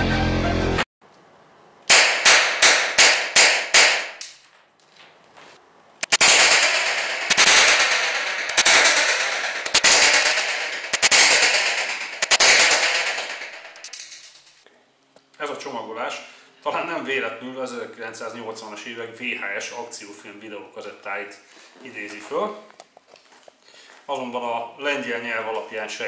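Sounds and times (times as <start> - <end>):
revolver gunshots echoing: 1.9 - 4.2, 6.0 - 14.0.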